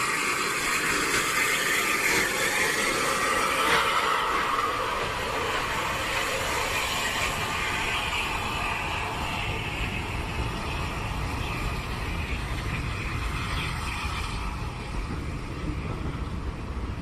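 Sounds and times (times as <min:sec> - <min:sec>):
train wheels rumbling on track: 0:00.0 - 0:17.0.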